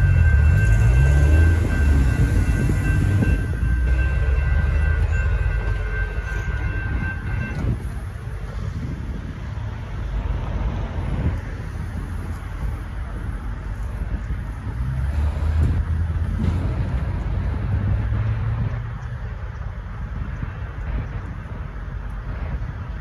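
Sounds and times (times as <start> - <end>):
high-pitched ringing: 0.0 - 8.3
freight train rumble: 0.0 - 23.0.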